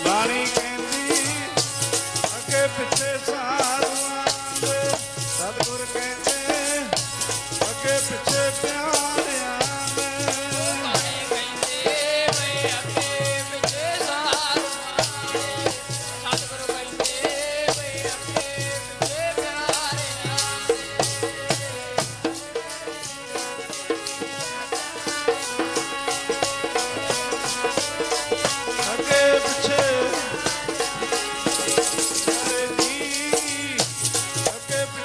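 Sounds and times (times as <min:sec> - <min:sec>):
harmonium tones: 0:00.0 - 0:35.0
jingling rattle and drum beat: 0:00.0 - 0:35.0.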